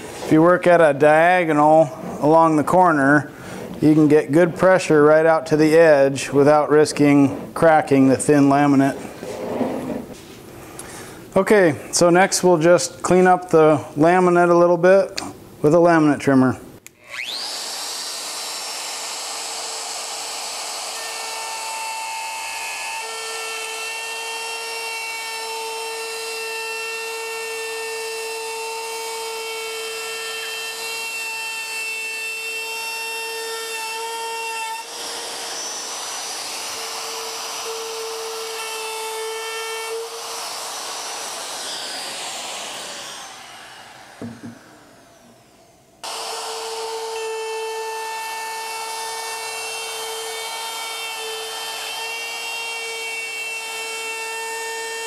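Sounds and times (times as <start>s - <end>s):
router high whine: 17.0s - 55.0s.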